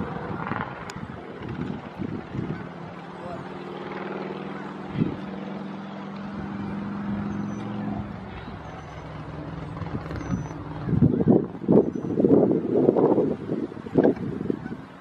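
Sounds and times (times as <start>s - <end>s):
motor engine drone: 0.0s - 15.0s.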